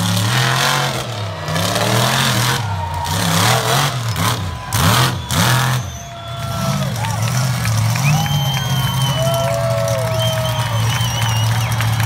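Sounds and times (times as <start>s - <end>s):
truck engine revving hard: 0.0s - 12.0s.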